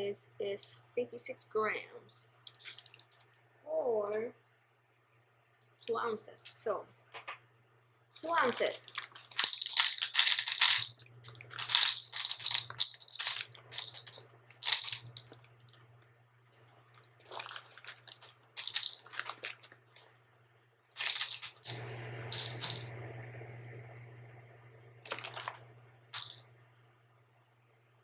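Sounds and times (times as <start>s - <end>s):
plastic bag crinkling: 2.3s - 3.4s, 8.1s - 22.9s, 25.0s - 26.4s
dry pasta clattering into bowl: 2.4s - 3.3s, 8.2s - 20.2s, 20.9s - 22.9s, 25.0s - 26.4s.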